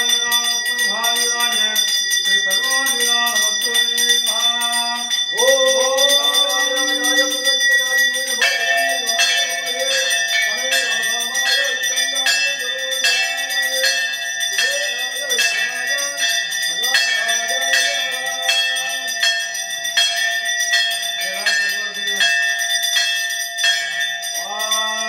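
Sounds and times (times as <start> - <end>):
person chanting: 0.0 - 19.2, 24.4 - 25.0
hand bell ringing: 0.0 - 25.0.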